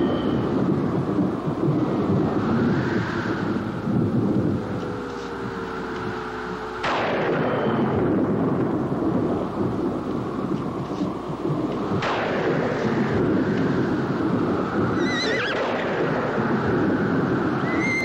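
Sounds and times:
thunder cracking and rumbling: 0.0 - 18.0.

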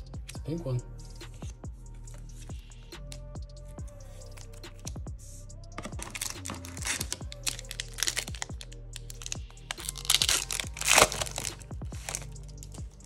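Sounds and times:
electronic music with deep beat: 0.0 - 13.0
wrapper and cards crinkling: 5.8 - 12.8.

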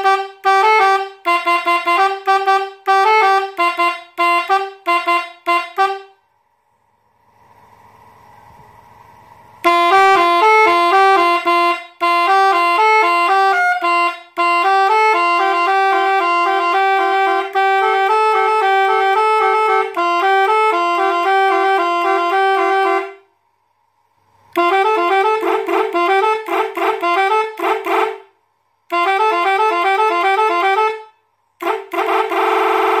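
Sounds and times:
electric bus horn playing melody: 0.0 - 6.4, 8.2 - 23.5, 24.3 - 33.0.

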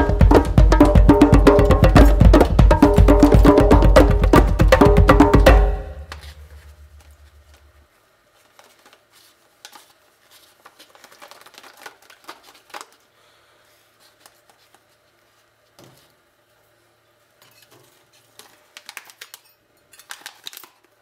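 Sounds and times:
music with percussive beat: 0.0 - 7.0.

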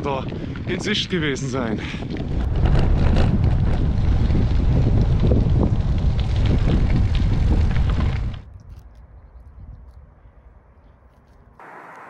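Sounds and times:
wind noise on microphone: 0.0 - 10.6
tyres crackling over gravel: 2.0 - 8.9.

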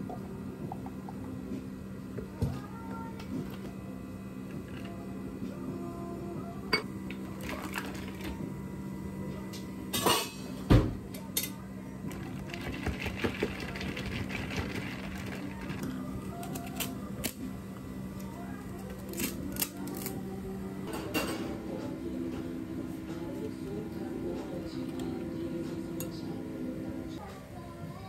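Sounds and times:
steady low hum: 0.0 - 28.0
ice clinking in plastic cups: 7.1 - 8.4, 12.1 - 16.9.

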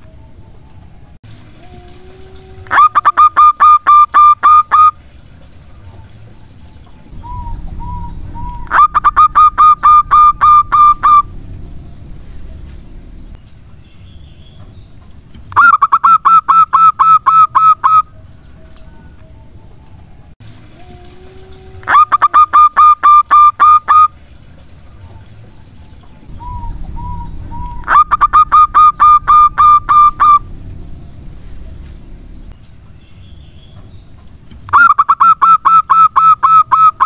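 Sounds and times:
dove cooing: 7.1 - 13.2, 26.3 - 32.4.

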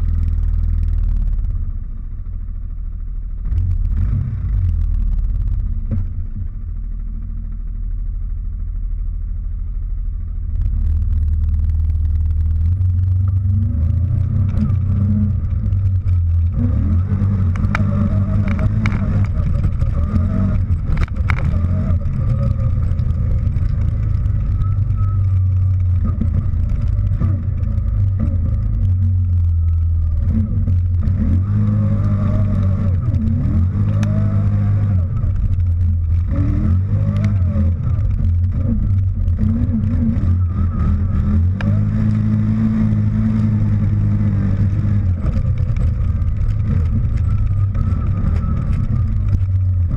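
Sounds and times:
atv engine revving: 10.5 - 49.9.

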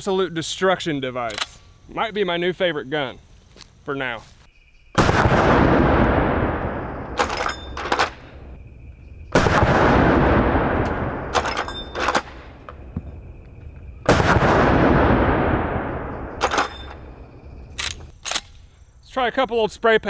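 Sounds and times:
rifle lever metallic clacks: 1.2 - 1.6, 17.8 - 18.6
rifle shot with rolling echo: 5.0 - 8.6, 9.3 - 12.7, 14.0 - 17.2.

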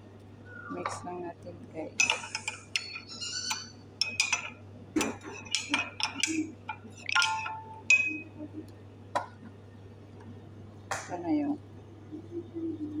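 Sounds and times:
spoon clinking in ceramic mug: 2.0 - 8.4.

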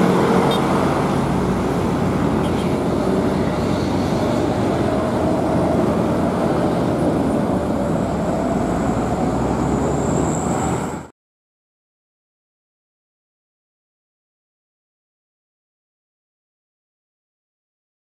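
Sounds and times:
bus diesel engine: 0.0 - 11.1
road traffic noise: 0.0 - 11.1.

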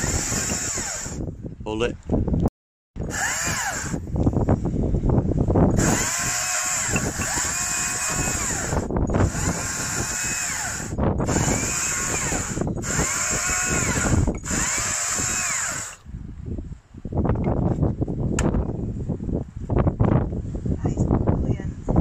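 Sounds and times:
chainsaw cutting log: 0.0 - 1.2, 3.0 - 4.0, 5.7 - 16.0.

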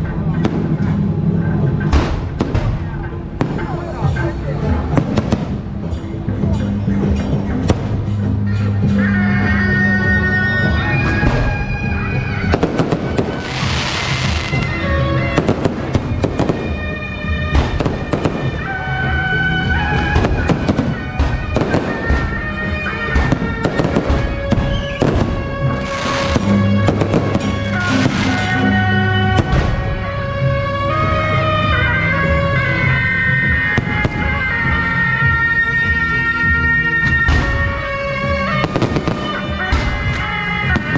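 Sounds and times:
melodic music: 0.0 - 40.9
fireworks bangs: 1.9 - 5.7, 10.9 - 31.1, 37.1 - 40.9
fireworks crackling hisses: 12.6 - 16.2, 24.1 - 28.8.

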